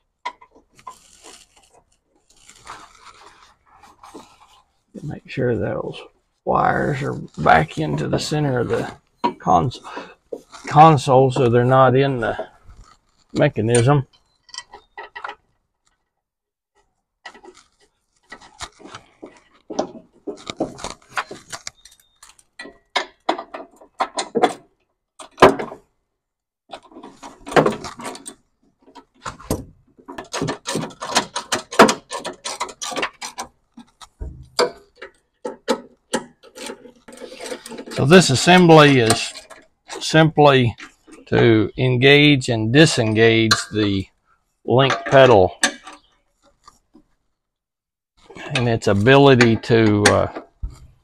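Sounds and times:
tool clicking and tapping on metal: 0:30.1 - 0:38.0.

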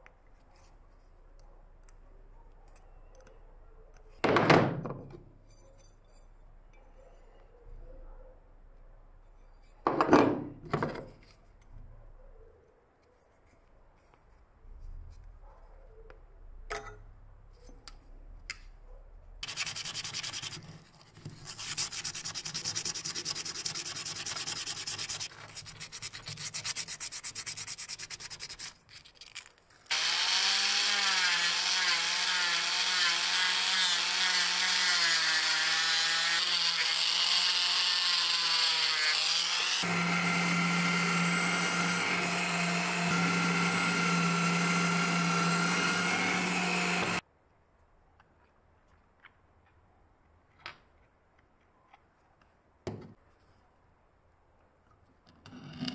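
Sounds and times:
drill boring into wood: 0:29.9 - 0:47.2
rotary tool grinding metal rod: 0:29.9 - 0:47.2.

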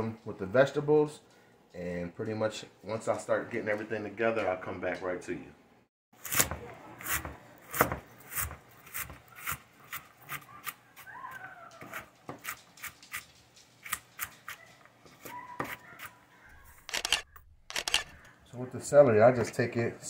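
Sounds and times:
knife chopping on plastic board: 0:06.3 - 0:10.8.

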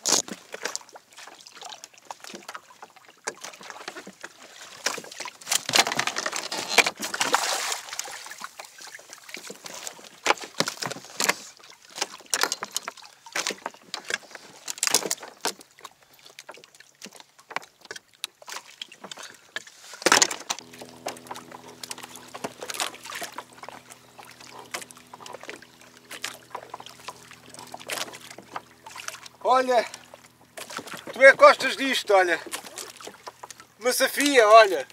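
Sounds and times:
water sloshing against kayak hull: 0:00.0 - 0:34.9
steady low hum: 0:20.6 - 0:33.9.

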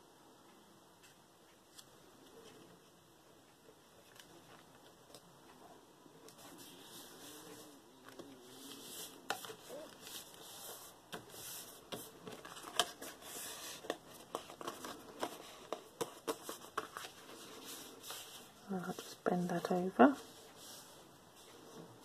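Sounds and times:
paper rustling and crinkling: 0:06.3 - 0:21.0.

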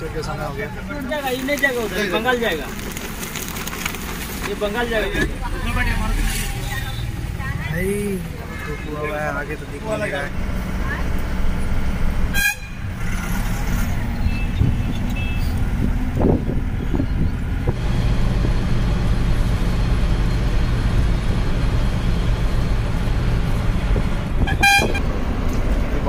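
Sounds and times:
bus engine and road rumble: 0:00.0 - 0:26.0
bus horn tooting: 0:12.3 - 0:13.0, 0:24.4 - 0:25.1.

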